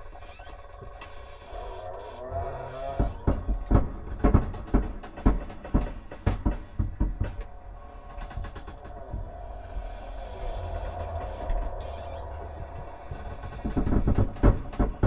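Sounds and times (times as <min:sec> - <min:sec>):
steady low hum: 0:00.0 - 0:15.0
heavy thuds: 0:03.0 - 0:09.4, 0:12.9 - 0:15.0.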